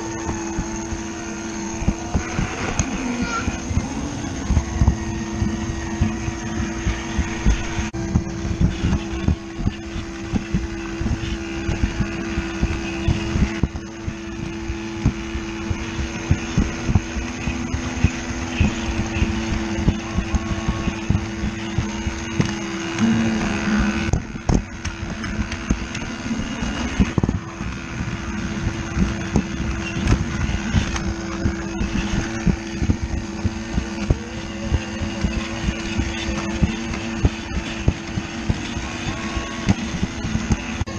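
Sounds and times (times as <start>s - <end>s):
toy train motor whirring: 0.0s - 7.9s.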